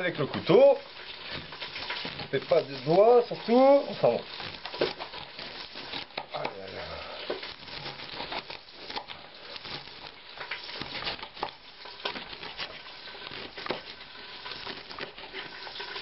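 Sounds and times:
pan frying in oil sizzle: 0.0 - 16.0.

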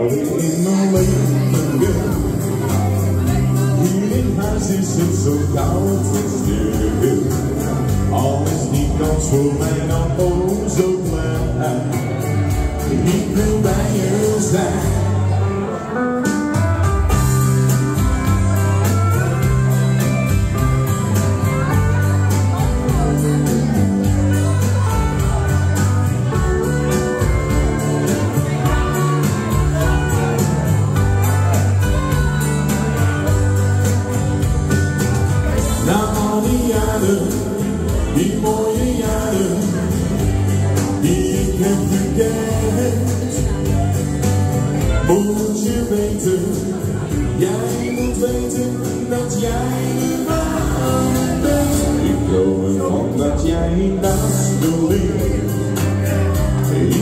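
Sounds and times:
man singing into microphone: 0.0 - 16.2, 35.4 - 57.0
music with beat and bass line: 0.0 - 57.0.

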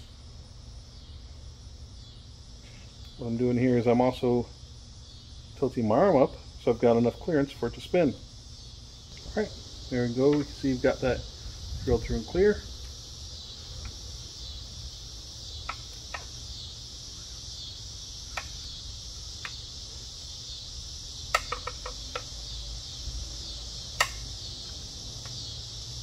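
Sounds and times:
insects chorus: 0.0 - 26.0
sharp metal clicks: 21.3 - 22.3, 24.0 - 24.3.

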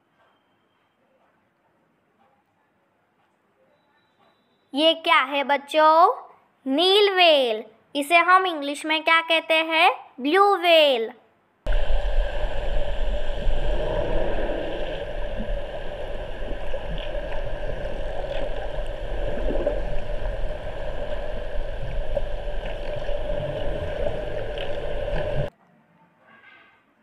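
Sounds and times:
low rumble: 11.7 - 25.5
underwater hum and rush of water: 11.7 - 25.5
water gurgling: 11.7 - 25.5.

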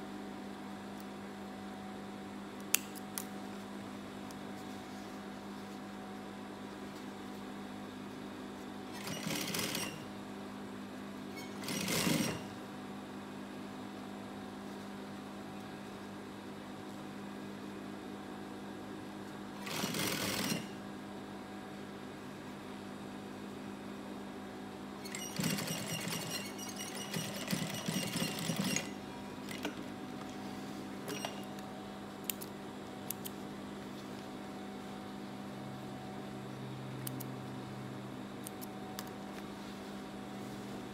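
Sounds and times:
steady hum: 0.0 - 40.9
sewing machine stitching: 8.9 - 10.0, 11.4 - 12.5, 19.6 - 20.8, 25.0 - 29.7.

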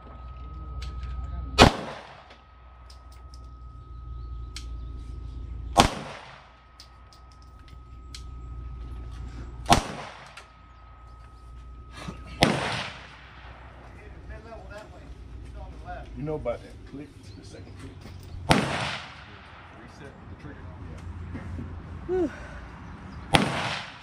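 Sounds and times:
gunshots with echo: 1.6 - 2.4, 5.8 - 6.6, 9.6 - 10.4, 12.4 - 13.9, 18.4 - 19.9, 23.3 - 24.0.

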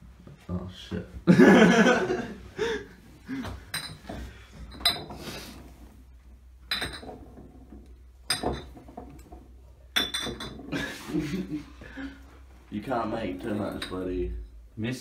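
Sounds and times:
glass bottles clinking: 3.3 - 5.9, 6.6 - 11.5, 13.1 - 14.6.

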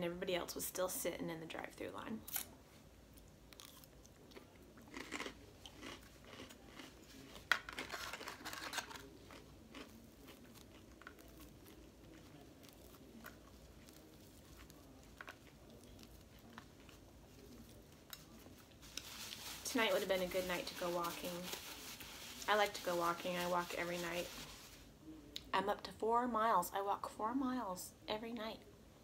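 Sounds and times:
chewing crisp lettuce: 3.1 - 24.8.

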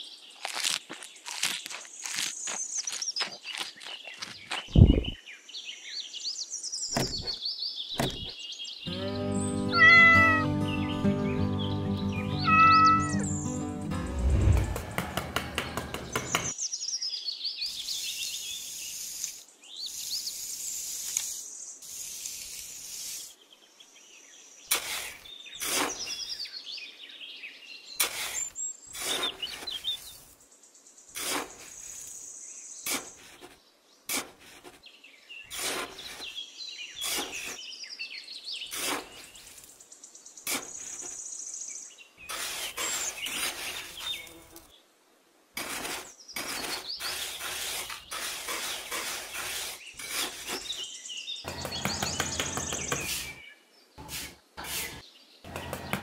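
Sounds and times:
birds chirping: 0.0 - 15.0, 15.6 - 19.0, 34.8 - 44.8, 46.0 - 56.0
hand trowel scraping damp sand: 24.7 - 26.3, 28.0 - 30.4, 31.2 - 32.2, 32.8 - 34.9, 35.5 - 37.6, 38.6 - 39.7, 40.4 - 41.2, 42.2 - 44.6, 45.6 - 51.0, 51.6 - 53.4, 54.0 - 55.0.

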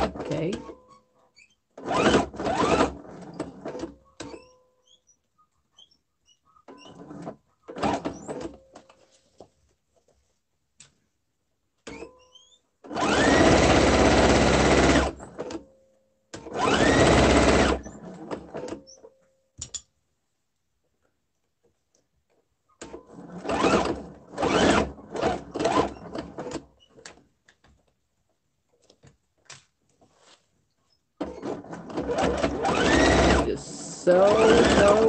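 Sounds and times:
sewing machine stitching: 0.0 - 4.6, 6.7 - 8.8, 11.8 - 15.7, 16.4 - 19.0, 22.8 - 27.0, 31.2 - 35.0.

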